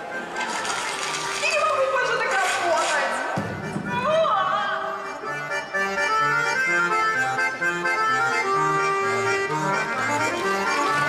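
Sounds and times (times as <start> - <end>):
instrumental music with bass line: 5.3 - 11.0.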